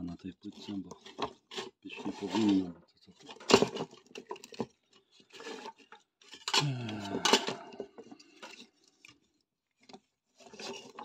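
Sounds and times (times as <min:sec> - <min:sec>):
low mumble: 0:06.6 - 0:07.8.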